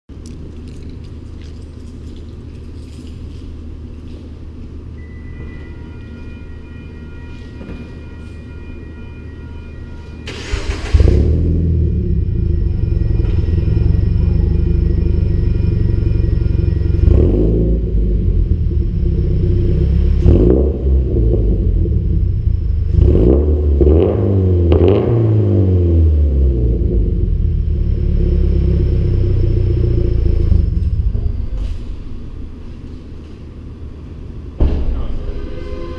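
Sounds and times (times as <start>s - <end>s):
car starter cranking: 10.2s - 11.4s
car engine firing up loudly: 10.3s - 32.0s.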